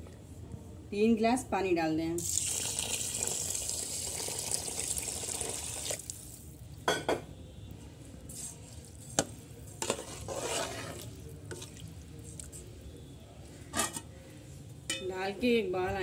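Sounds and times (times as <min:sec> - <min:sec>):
water pouring into metal pot: 0:02.2 - 0:06.3.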